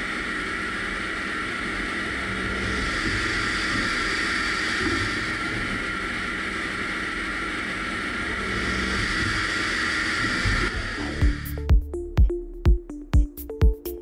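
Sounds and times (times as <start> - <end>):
cutting and coolant spray hiss: 0.0 - 11.7
high machine whine: 0.0 - 14.0
electronic music with heavy beat: 11.0 - 14.0.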